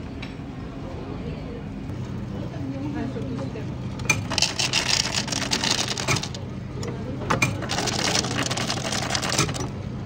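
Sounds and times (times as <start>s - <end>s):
ice clattering into a glass: 7.6s - 9.6s.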